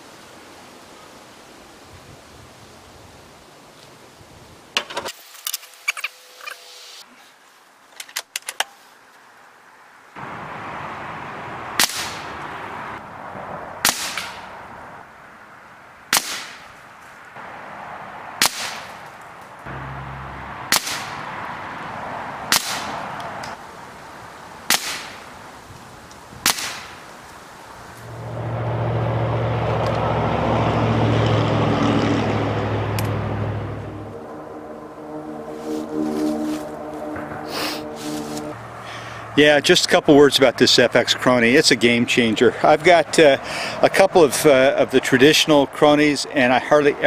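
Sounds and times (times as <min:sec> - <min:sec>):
air rifle shots: 0:11.8 - 0:12.3, 0:13.8 - 0:14.5, 0:16.1 - 0:16.7, 0:18.4 - 0:19.0, 0:20.7 - 0:21.2, 0:22.5 - 0:23.0, 0:24.7 - 0:25.2, 0:26.4 - 0:27.0
steady low hum: 0:32.3 - 0:38.6.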